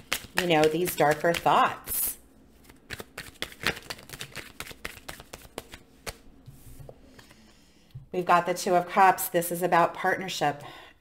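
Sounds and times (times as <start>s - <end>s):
cards shuffled by hand: 0.0s - 6.2s.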